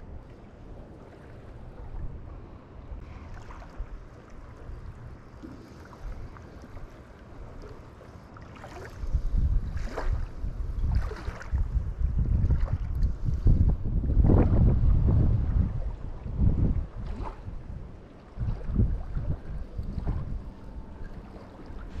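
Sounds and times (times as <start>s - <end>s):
wind rumble on microphone: 0.0s - 22.0s.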